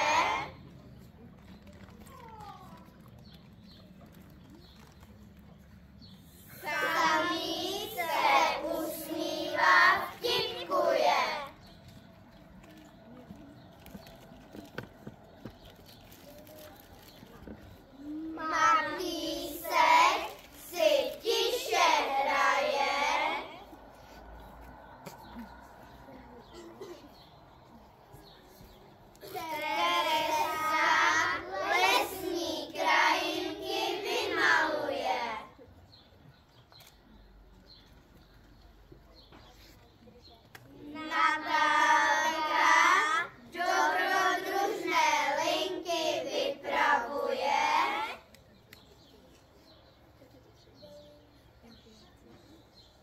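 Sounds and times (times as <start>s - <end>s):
young children singing: 0.0s - 0.6s, 6.6s - 11.6s, 18.3s - 23.8s, 29.2s - 35.4s, 41.0s - 48.2s
child singing: 6.6s - 11.5s.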